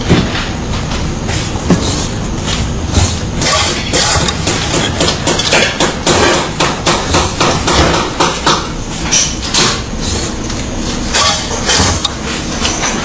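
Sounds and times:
pneumatic crimping machine clacking: 3.4 - 9.9.

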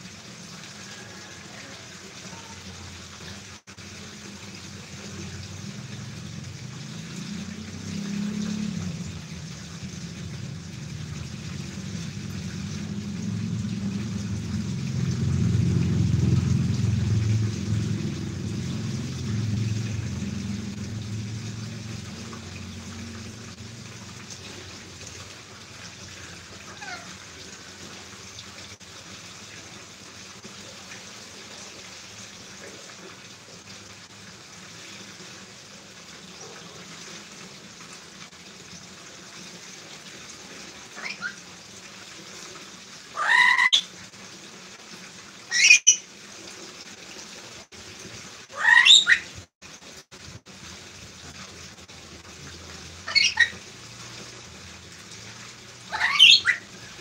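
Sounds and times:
low rumble: 5.3 - 24.6
parrot squawking: 26.7 - 27.1, 41.0 - 41.4, 43.2 - 43.8, 45.5 - 46.0, 48.5 - 49.3, 53.0 - 53.6, 55.9 - 56.7.

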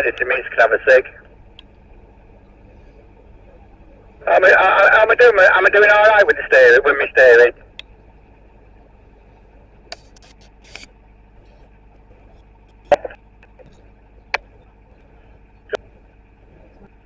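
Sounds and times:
boat engine humming: 0.0 - 17.0.

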